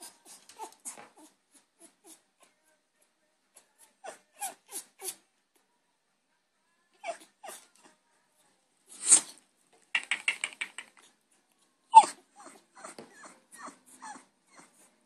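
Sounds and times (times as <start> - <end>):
parrot clicks: 10.0 - 11.0
parrot squawking: 10.0 - 11.0.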